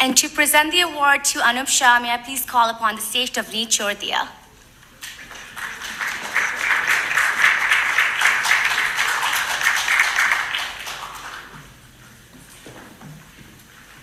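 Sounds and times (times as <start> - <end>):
audience applauding: 5.0 - 11.8.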